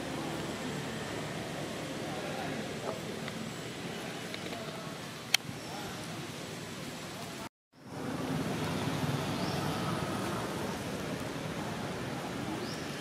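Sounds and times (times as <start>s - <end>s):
low rumble with hiss: 0.0s - 13.0s.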